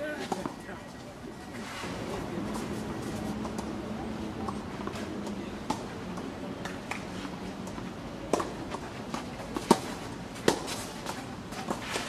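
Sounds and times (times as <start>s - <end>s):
tennis rackets striking ball: 2.5s - 3.8s, 4.4s - 12.0s.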